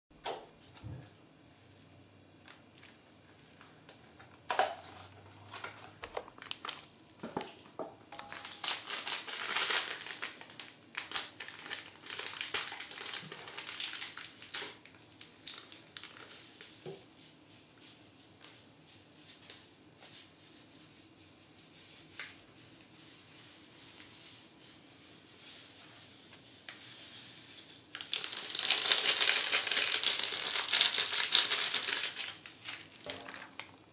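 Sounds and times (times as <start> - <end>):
plastic and cardboard packaging crinkling: 4.0 - 17.0, 27.8 - 33.9.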